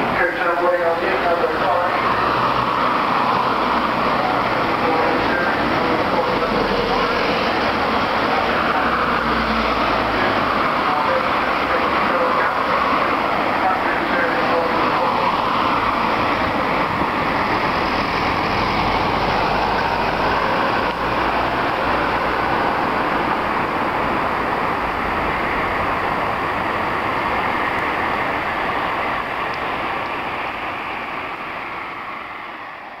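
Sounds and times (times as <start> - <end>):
cars passing on busy road: 0.0 - 33.0.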